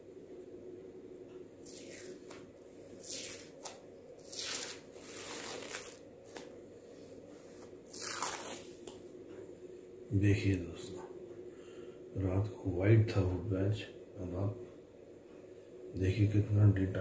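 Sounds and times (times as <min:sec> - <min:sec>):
steady low hum: 0:00.0 - 0:17.0
patch peeling off skin: 0:03.0 - 0:06.5, 0:07.9 - 0:09.0.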